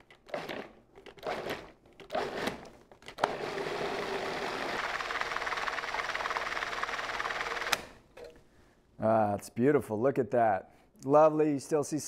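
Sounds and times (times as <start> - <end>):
food processor running: 3.2 - 7.8.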